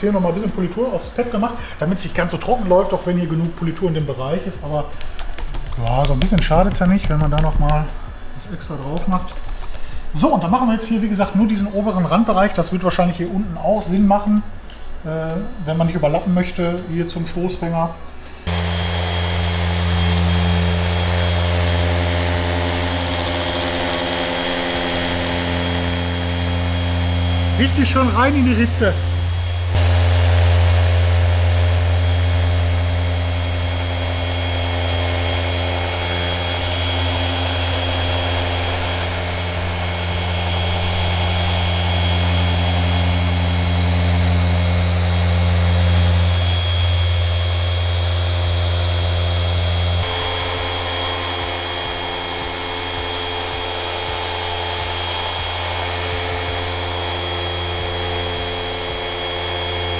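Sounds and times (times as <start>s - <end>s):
electric polisher whirring: 18.4s - 59.9s.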